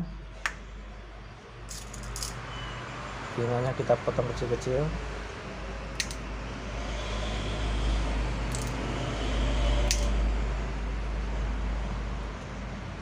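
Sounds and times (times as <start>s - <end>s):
scissors snipping metal: 6.0s - 6.2s, 9.9s - 10.1s.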